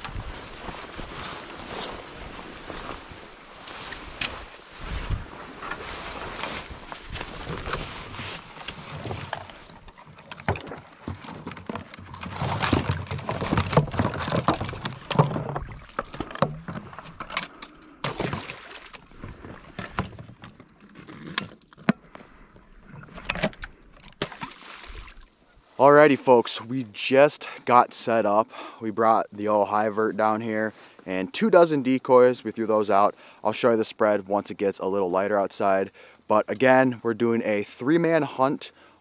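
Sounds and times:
dry grass and reeds rustling: 0.0s - 21.3s
crunches and knocks: 4.0s - 17.4s.

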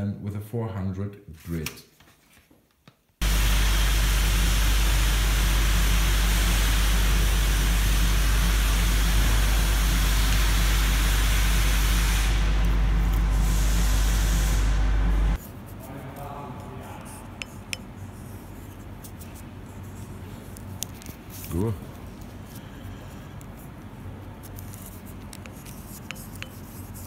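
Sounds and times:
deep even hum: 3.2s - 15.4s
loud rushing hiss: 3.2s - 15.4s.

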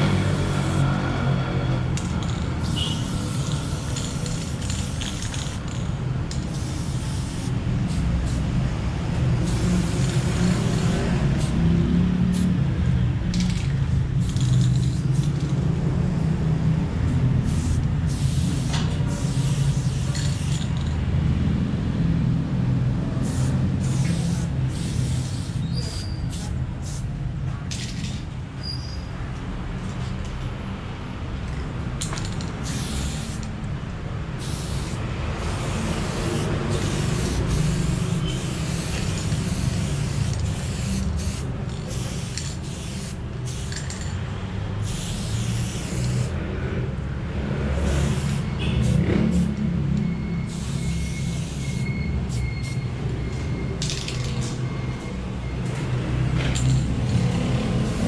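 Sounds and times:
spray paint can hissing: 0.0s - 0.9s, 2.0s - 12.6s, 13.3s - 15.6s, 17.4s - 21.0s, 23.2s - 27.1s, 32.0s - 33.7s, 34.4s - 44.2s, 44.8s - 46.4s, 47.8s - 49.6s, 50.4s - 53.0s, 57.8s - 58.0s.

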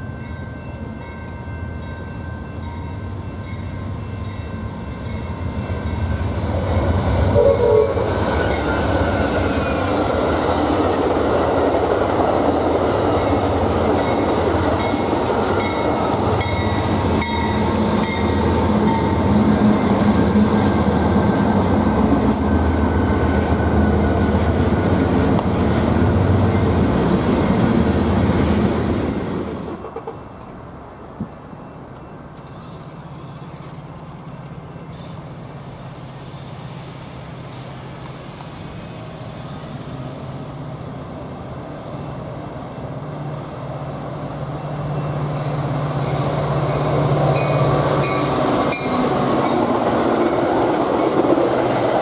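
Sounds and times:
diesel locomotives rumbling: 0.0s - 52.0s
train horn: 7.2s - 8.2s.

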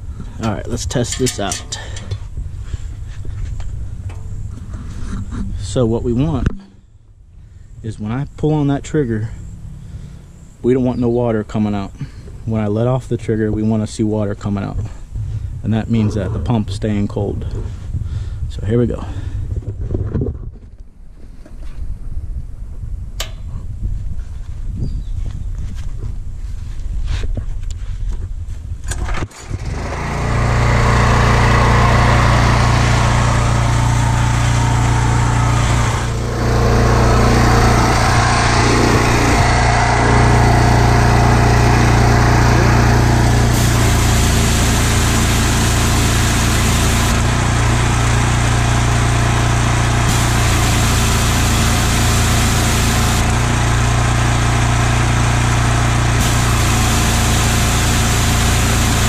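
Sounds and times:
pressure washer engine running: 29.6s - 59.0s
high water spray hiss: 43.4s - 47.2s, 50.0s - 53.3s, 56.2s - 59.0s.

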